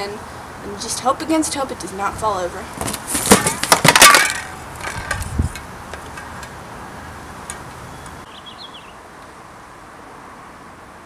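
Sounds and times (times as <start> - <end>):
faint outdoor background: 0.0 - 11.0
cardboard boxes falling over: 2.8 - 5.1
bird chirping: 7.8 - 9.0.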